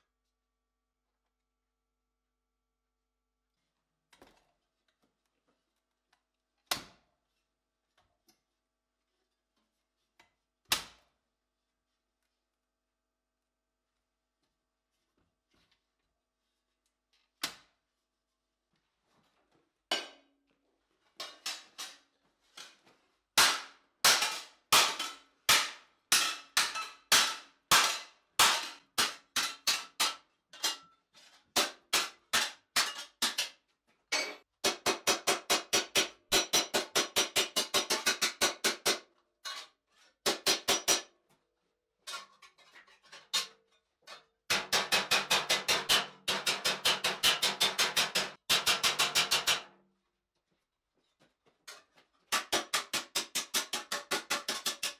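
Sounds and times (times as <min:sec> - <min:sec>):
hammer striking steel on anvil: 0:19.9 - 0:20.3, 0:23.4 - 0:30.9, 0:34.2 - 0:39.0, 0:44.5 - 0:49.7.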